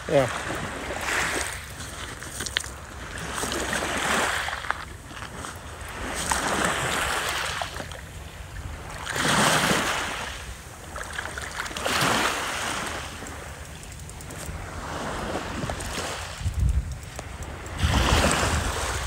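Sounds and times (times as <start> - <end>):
small waves on pebble beach: 0.0 - 13.6, 14.3 - 16.6, 17.3 - 19.0
steady low rumble: 7.7 - 9.2, 12.7 - 19.0.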